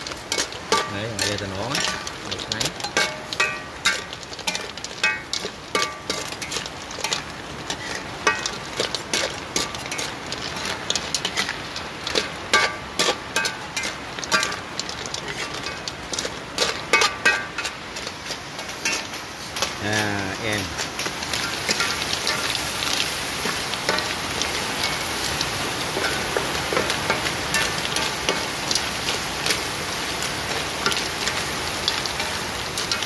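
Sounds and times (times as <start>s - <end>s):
hot oil sizzling: 0.0s - 33.0s
metal spatula knocking on wok: 2.8s - 6.6s.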